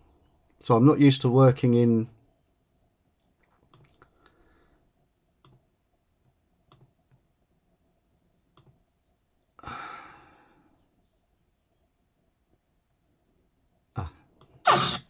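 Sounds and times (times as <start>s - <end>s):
computer mouse clicks: 5.4s - 5.6s, 6.7s - 7.2s, 8.5s - 8.8s
person sighing: 9.6s - 10.7s.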